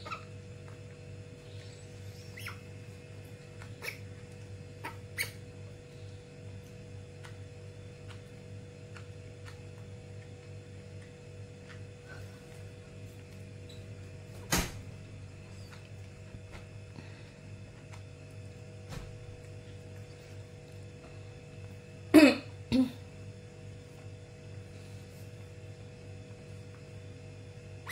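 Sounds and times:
baby monkey clicks and squeaks: 0:00.0 - 0:00.7, 0:02.2 - 0:02.7, 0:03.5 - 0:05.5
low steady hum: 0:00.0 - 0:27.9.

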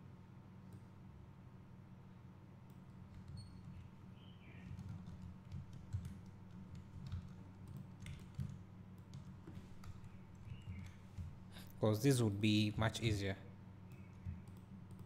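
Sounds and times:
steady low hum: 0:00.0 - 0:15.0
keyboard keys tapping: 0:04.6 - 0:11.4.

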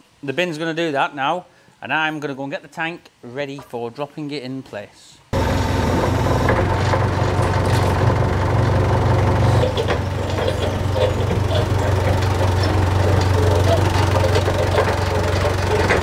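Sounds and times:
engine idling: 0:05.4 - 0:16.0.

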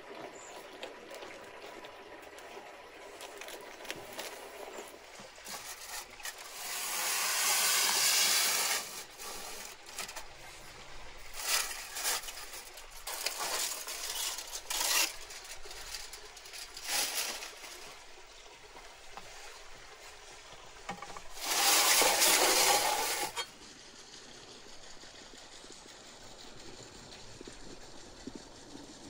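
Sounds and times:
aluminium foil crinkling: 0:05.4 - 0:18.2.

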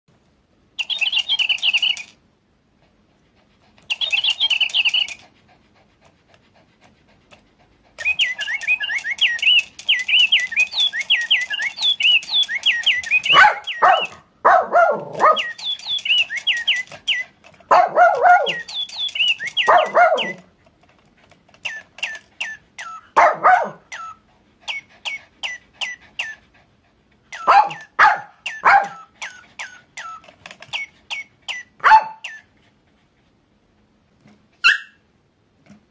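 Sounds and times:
electronic toy bird chirping: 0:00.8 - 0:02.2, 0:03.9 - 0:05.2, 0:08.0 - 0:14.2, 0:15.2 - 0:17.5, 0:18.1 - 0:20.4, 0:21.6 - 0:23.2, 0:23.9 - 0:26.4, 0:27.3 - 0:32.5.

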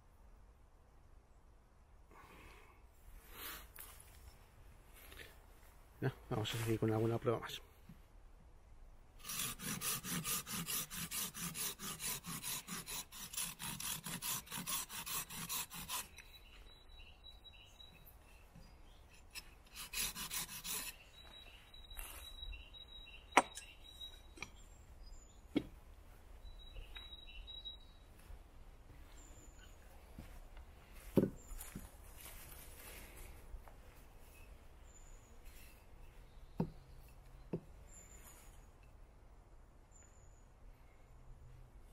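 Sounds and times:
knife blade scraping wood: 0:09.2 - 0:16.5, 0:17.9 - 0:21.5
faint high chirps: 0:21.0 - 0:25.5, 0:26.4 - 0:28.3.

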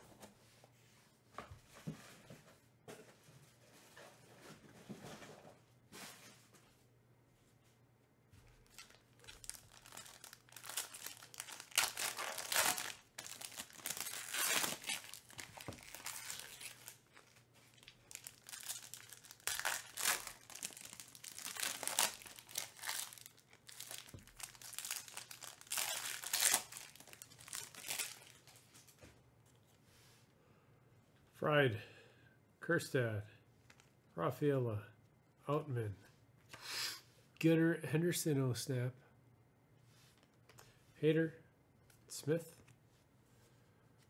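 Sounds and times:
foil wrappers crinkling and tearing: 0:08.6 - 0:28.9.

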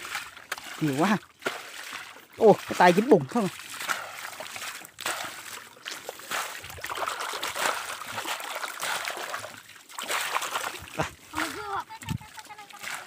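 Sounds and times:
muddy water splashing and sloshing: 0:00.0 - 0:13.0.

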